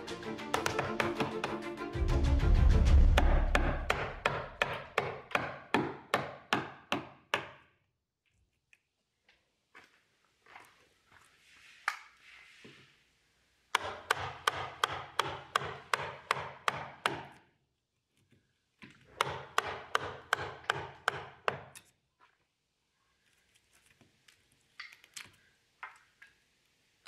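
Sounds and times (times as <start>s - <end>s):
soft scraping: 11.1s - 13.0s.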